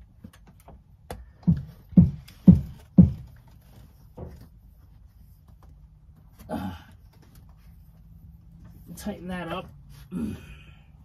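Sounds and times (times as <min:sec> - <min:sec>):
dull knocks with booms: 0:01.5 - 0:03.3.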